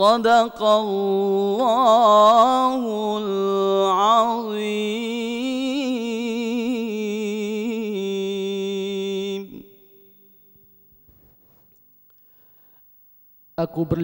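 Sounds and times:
man reciting melodically: 0:00.0 - 0:10.1, 0:13.6 - 0:14.0.

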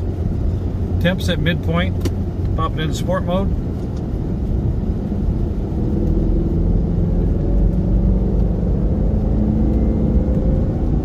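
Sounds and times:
car engine accelerating: 0:00.0 - 0:11.0
road rumble: 0:00.0 - 0:11.0
driver talking: 0:00.9 - 0:03.7.

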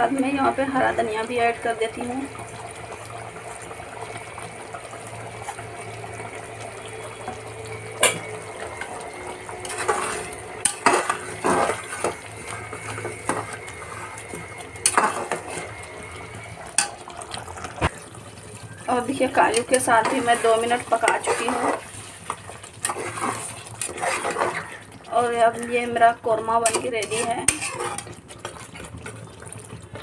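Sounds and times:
metal spatula scraping pot: 0:09.6 - 0:14.2, 0:14.8 - 0:15.7, 0:19.2 - 0:24.8, 0:26.5 - 0:28.2
spatula clinking against pot: 0:26.6 - 0:28.0.

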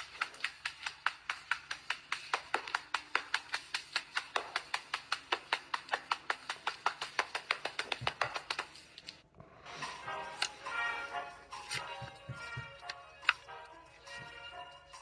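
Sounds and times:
rapid even clicking: 0:00.0 - 0:09.2.

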